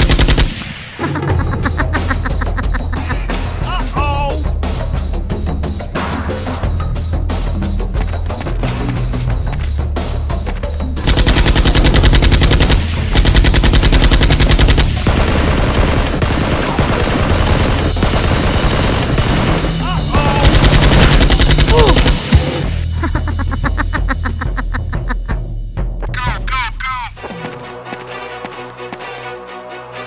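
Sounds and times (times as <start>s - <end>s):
automatic gunfire bursts: 0.0s - 0.6s, 11.0s - 22.6s
background music: 0.0s - 30.0s.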